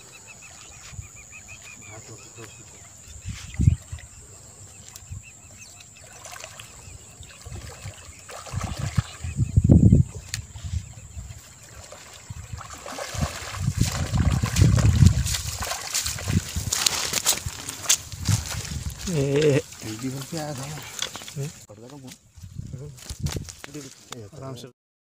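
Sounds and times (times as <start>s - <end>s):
feet sloshing through shallows: 6.0s - 9.4s, 10.8s - 21.6s
fish thrashing in shallow water: 6.0s - 9.4s, 10.4s - 21.6s.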